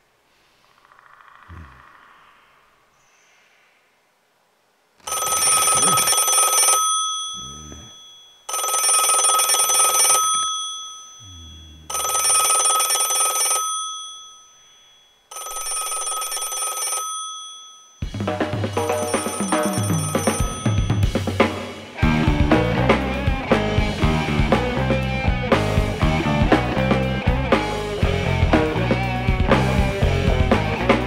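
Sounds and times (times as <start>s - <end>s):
bell telephone ringing: 5.0s - 21.4s
music: 18.1s - 31.0s.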